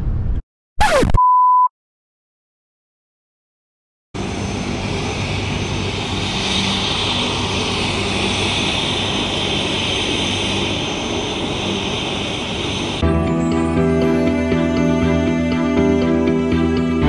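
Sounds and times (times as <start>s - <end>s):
helicopter running: 4.2s - 16.9s.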